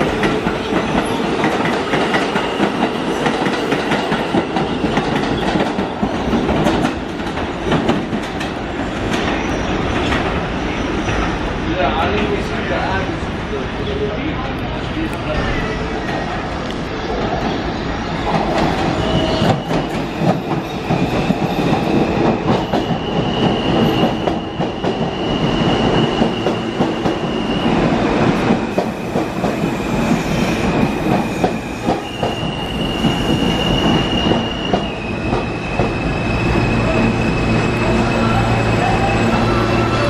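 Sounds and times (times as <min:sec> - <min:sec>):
train wheels clacking over rails: 0:00.0 - 0:11.4, 0:17.1 - 0:37.3
high wheel squeal: 0:18.7 - 0:27.9, 0:28.9 - 0:40.0.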